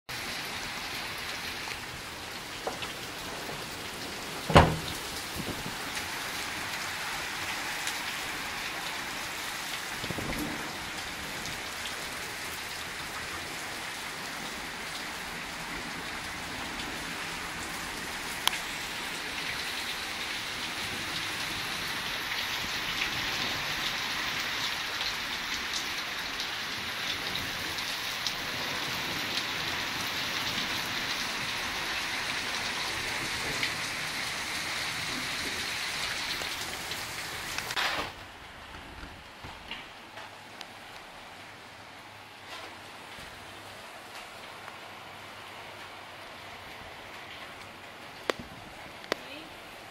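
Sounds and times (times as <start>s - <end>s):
heavy rain pouring: 0.1s - 49.9s
sharp knocks: 4.5s - 5.0s.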